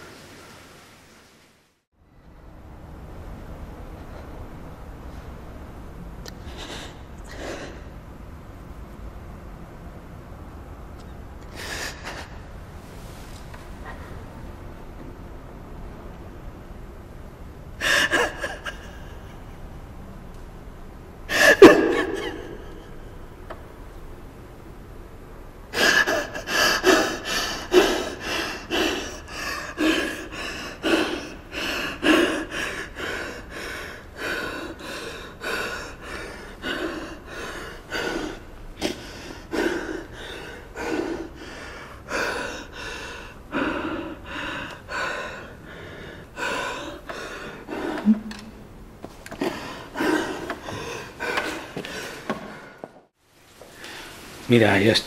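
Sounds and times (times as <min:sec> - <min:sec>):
person breathing hard: 0:06.4 - 0:08.0, 0:11.5 - 0:12.4, 0:17.8 - 0:19.5, 0:25.7 - 0:48.3, 0:49.3 - 0:53.1.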